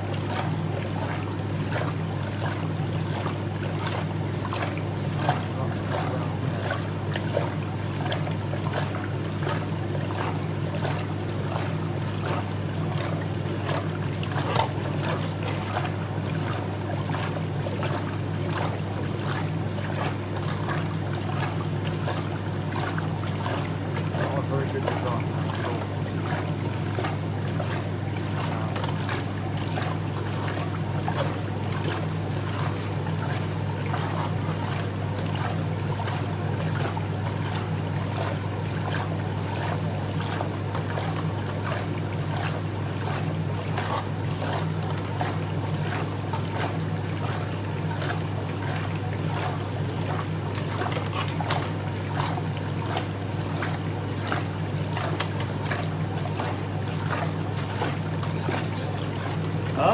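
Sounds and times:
washing machine motor hum: 0.0s - 59.9s
water sloshing in wash tub: 0.0s - 59.9s.

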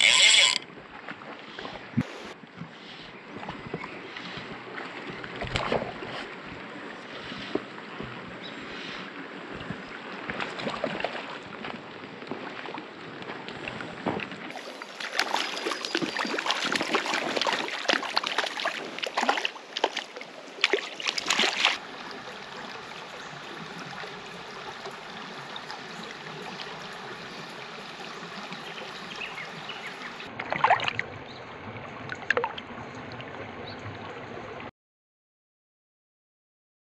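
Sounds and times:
creek water running over stones: 14.5s - 31.0s
fish splashing in water: 14.5s - 31.0s.

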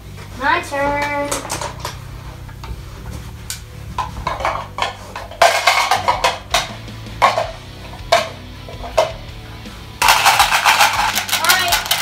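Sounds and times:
music with percussion: 3.9s - 12.0s.

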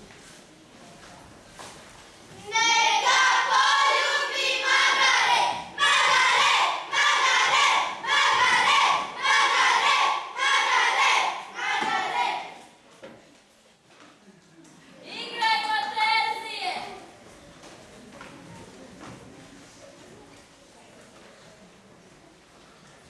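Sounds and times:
children singing together: 2.5s - 12.6s.

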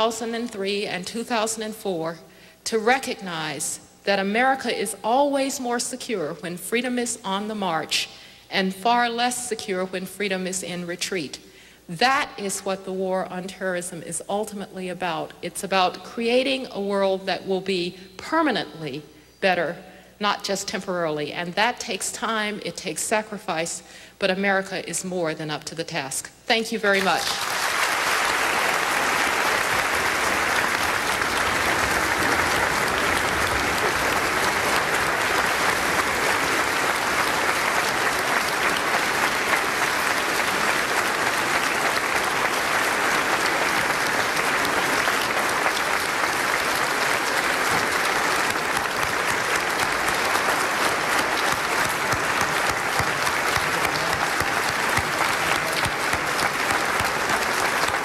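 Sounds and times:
large audience applauding: 27.0s - 58.0s.

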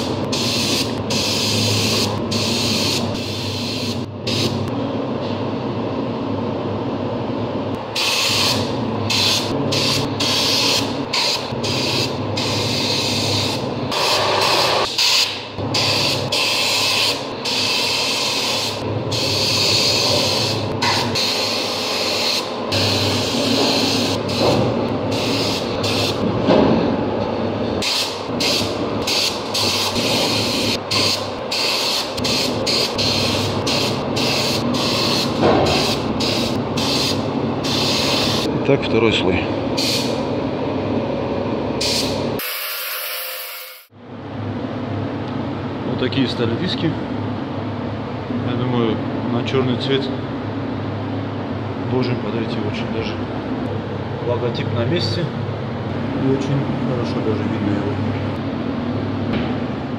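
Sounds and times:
steady low hum: 0.0s - 42.4s, 43.9s - 59.9s
spray gun hissing: 0.3s - 4.6s, 8.0s - 24.5s, 25.1s - 26.2s, 27.8s - 38.5s.

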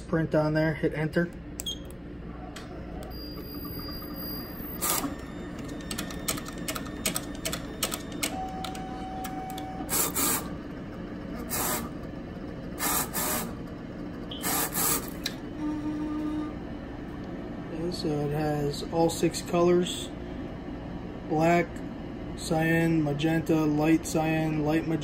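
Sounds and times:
machine hum: 0.0s - 25.0s
brief printer tone: 3.0s - 10.5s, 14.3s - 15.0s, 15.6s - 16.5s
printer clicks: 4.8s - 9.9s.

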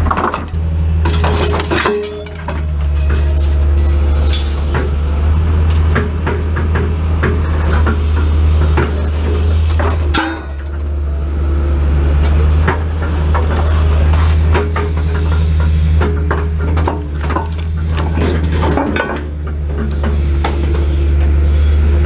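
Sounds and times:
excavator engine and hydraulics: 0.0s - 22.0s
scrap metal clinking: 1.1s - 5.0s.

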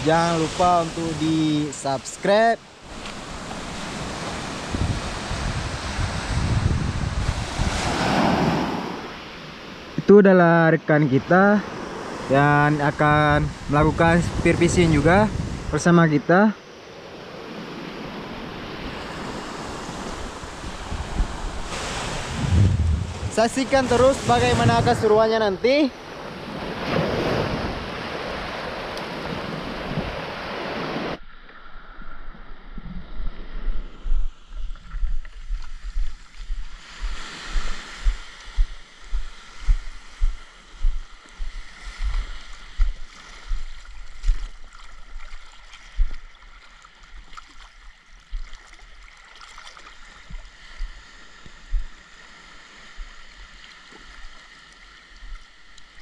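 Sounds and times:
surf: 0.0s - 16.6s, 17.4s - 31.2s
wind on microphone: 2.8s - 9.2s, 12.9s - 15.8s, 17.4s - 47.4s, 50.0s - 54.4s
muffled water sloshing: 31.2s - 56.0s.

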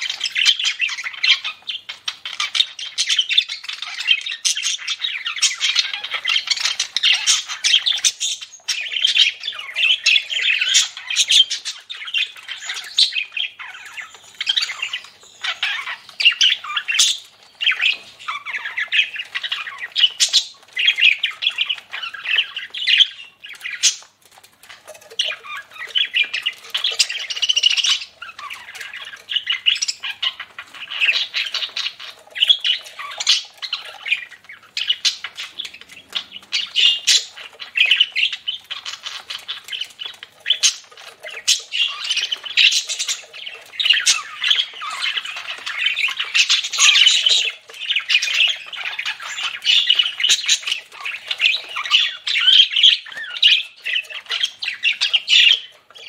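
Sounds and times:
budgerigars chattering and warbling: 0.0s - 56.0s.

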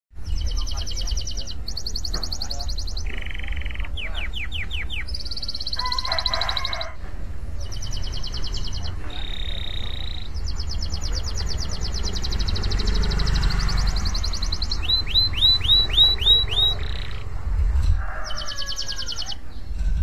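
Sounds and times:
canary singing: 0.2s - 19.8s
steady low rumble: 6.9s - 20.0s.

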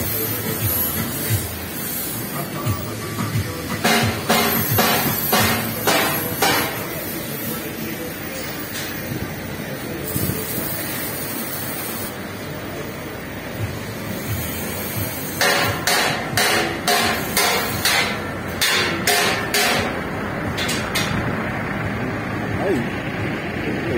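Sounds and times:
workshop yard background noise: 0.0s - 23.9s
hammer striking metal: 3.7s - 7.0s, 15.4s - 21.2s.

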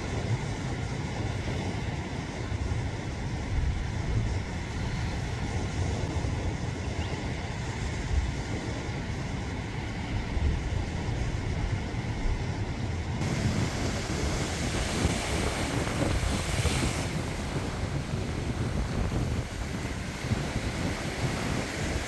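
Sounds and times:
wind rumbling on microphone: 0.0s - 22.0s
sea waves breaking on rocks: 13.2s - 22.0s.

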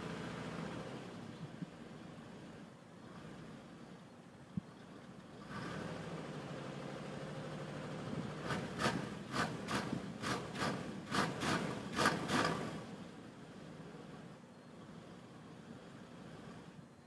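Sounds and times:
short noisy bursts: 8.4s - 12.8s.

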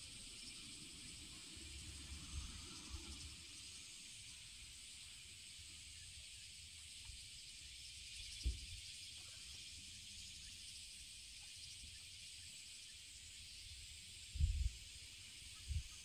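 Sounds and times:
insects droning: 0.0s - 16.0s
low thump: 8.4s - 8.8s.

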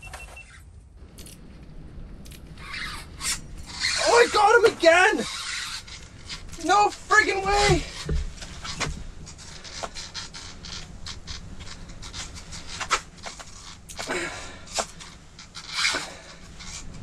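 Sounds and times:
gear clicks and scrapes: 0.1s - 17.0s
person breathing hard: 14.0s - 15.0s.

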